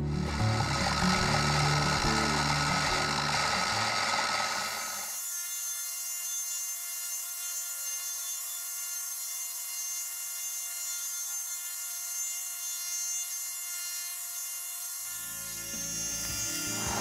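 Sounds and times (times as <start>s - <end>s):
milling machine spindle whine: 0.0s - 5.2s, 15.4s - 17.0s.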